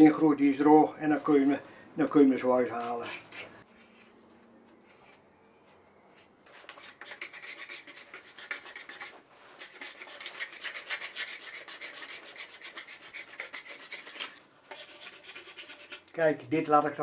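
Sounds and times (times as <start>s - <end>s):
blade scraping bark from stick: 2.6s - 3.6s, 6.5s - 16.2s.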